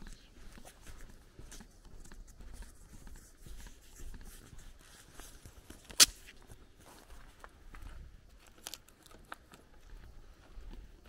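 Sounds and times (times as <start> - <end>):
footsteps on dirt: 0.0 - 11.0.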